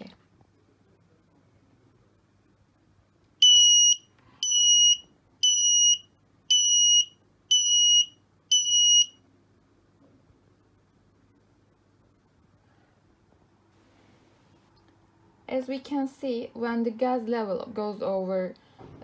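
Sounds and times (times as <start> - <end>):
gas alarm buzzer beeping: 3.4 - 9.2.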